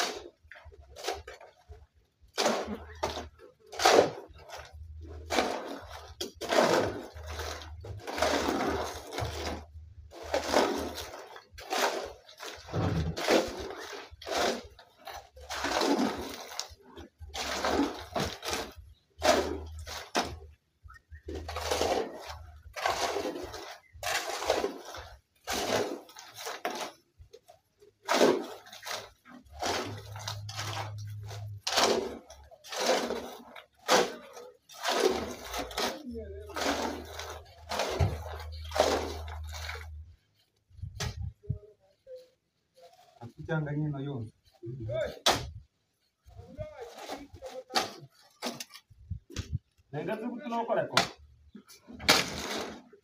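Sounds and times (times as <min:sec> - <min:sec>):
shovel scraping into gravel: 0:02.4 - 0:16.7, 0:17.3 - 0:20.4, 0:28.0 - 0:40.0.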